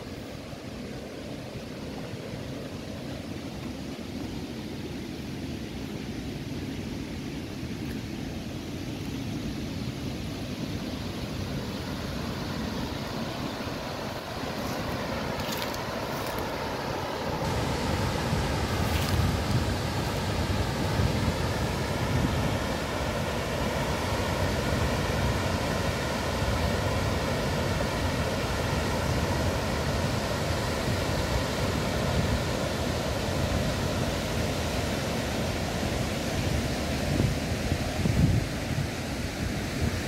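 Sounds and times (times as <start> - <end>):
water rushing over a weir: 7.0 - 40.0
wind on microphone: 17.4 - 40.0.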